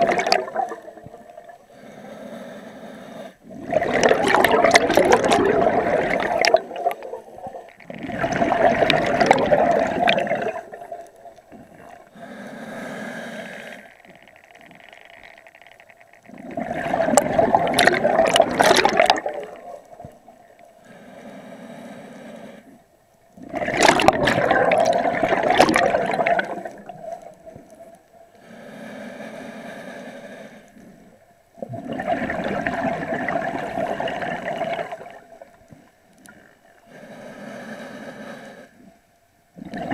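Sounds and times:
diver exhaling bubbles: 0.0s - 1.1s, 3.5s - 11.0s, 16.4s - 19.8s, 23.4s - 27.1s, 31.6s - 35.3s, 39.6s - 39.9s
regulator hissing inhalation: 12.1s - 13.9s.

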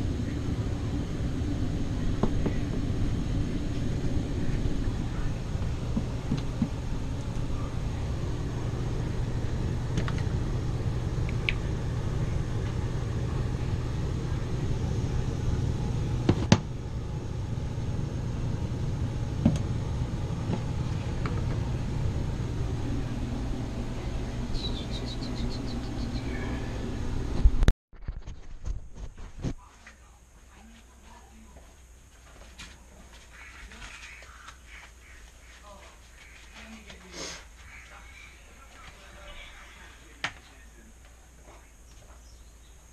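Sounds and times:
air handler blower humming: 0.0s - 27.7s, 29.4s - 42.9s.

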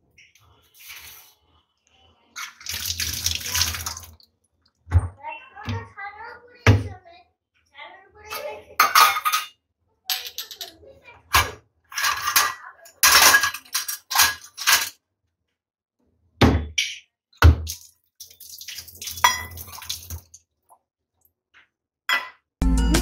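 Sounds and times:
steel dishes clinking: 8.8s - 10.8s, 11.9s - 15.0s.

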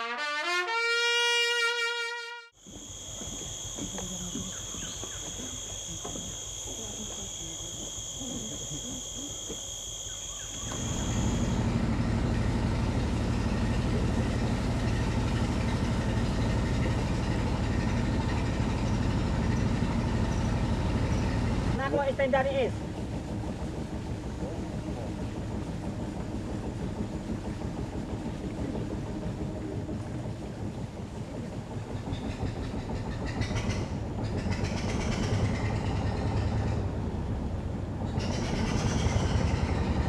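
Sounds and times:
boat engine humming: 0.0s - 40.0s
forest ambience: 2.4s - 40.0s
high insect drone: 2.6s - 23.2s.

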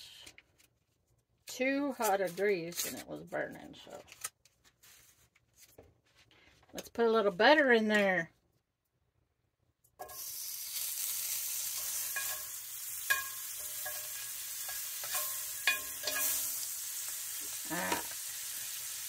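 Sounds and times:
butter sizzling in a skillet: 10.0s - 19.0s
utensil scraping a pan: 11.5s - 16.8s.

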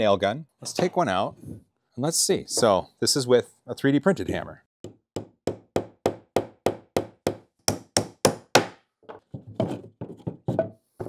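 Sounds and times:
hammer tapping nail into wood: 4.8s - 8.8s.

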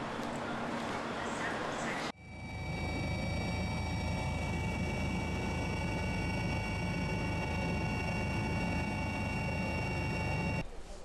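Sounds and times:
turbine whine: 2.1s - 10.6s
helicopter rotor beat: 2.2s - 10.6s.

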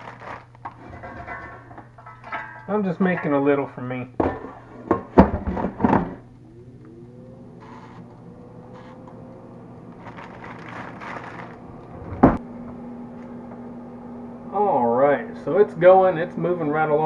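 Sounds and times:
plastic bag rustling: 0.0s - 1.6s, 9.9s - 12.4s
air fryer fan humming: 0.0s - 17.0s
air fryer basket clunking: 0.6s - 3.6s, 4.2s - 6.2s
loud thump: 12.0s - 12.4s.

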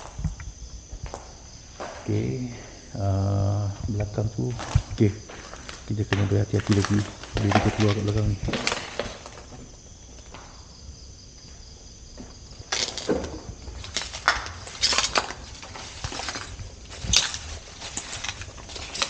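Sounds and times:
footsteps crunching through undergrowth: 3.6s - 10.8s, 11.4s - 19.0s.

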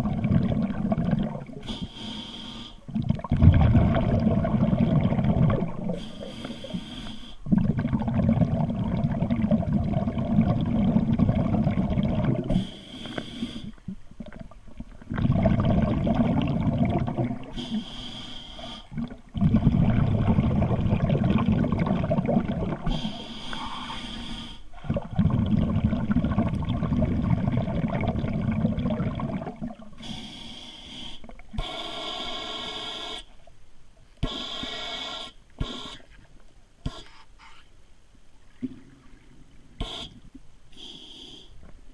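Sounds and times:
rumbling underwater bubbles: 0.0s - 1.6s, 2.9s - 6.3s, 7.4s - 12.5s, 13.8s - 17.6s, 18.9s - 23.0s, 24.8s - 30.0s
diver breathing through regulator: 1.6s - 2.8s, 5.9s - 7.4s, 12.5s - 13.8s, 17.5s - 18.9s, 22.9s - 24.7s, 34.2s - 36.1s, 39.8s - 41.6s.

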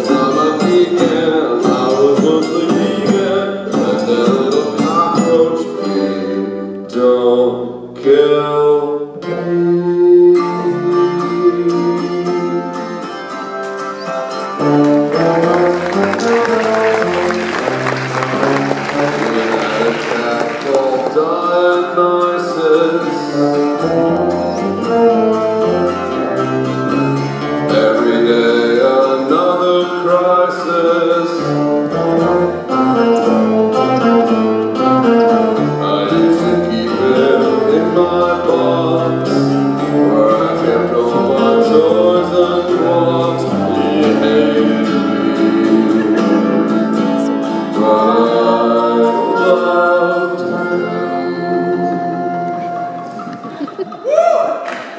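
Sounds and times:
person singing: 0.0s - 13.8s, 14.4s - 54.9s
live band playing: 10.6s - 54.1s.

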